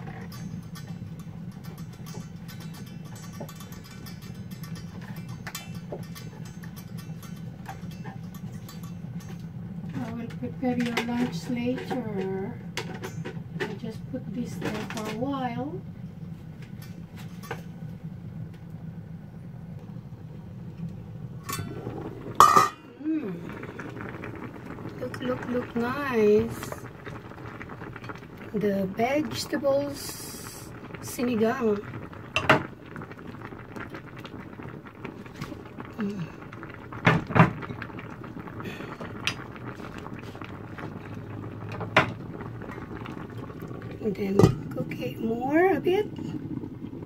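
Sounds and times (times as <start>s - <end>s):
metal pot lid clinking: 0.0s - 9.4s, 21.5s - 22.8s
soup bubbling in a pot: 0.0s - 47.0s
steady low hum: 0.0s - 47.0s
pot lid ringing clank: 22.4s - 22.8s.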